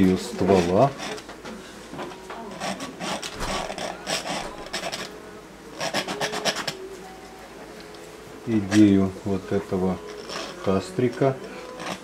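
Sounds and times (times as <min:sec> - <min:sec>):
paintbrush scrubbing canvas: 0:02.5 - 0:05.1, 0:05.7 - 0:06.8.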